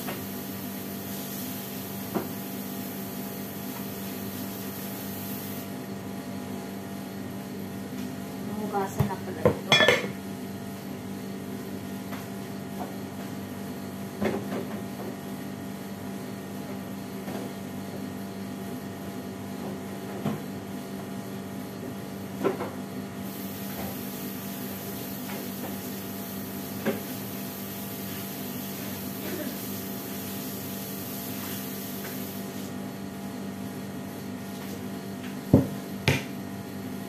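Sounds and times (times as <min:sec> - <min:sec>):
steady background hum: 0:05.6 - 0:31.6, 0:32.4 - 0:37.0
dishes and pots clinking: 0:09.6 - 0:10.2.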